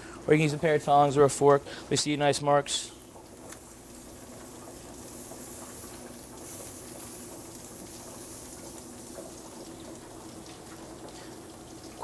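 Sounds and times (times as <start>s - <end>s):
meat sizzling on a grill: 2.6s - 12.0s.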